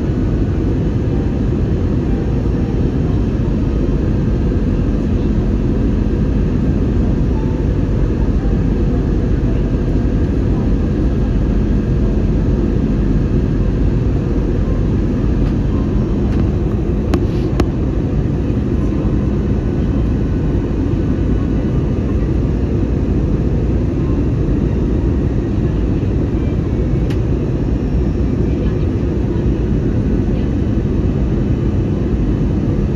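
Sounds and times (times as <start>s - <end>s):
airliner cabin engine drone: 0.0s - 32.9s.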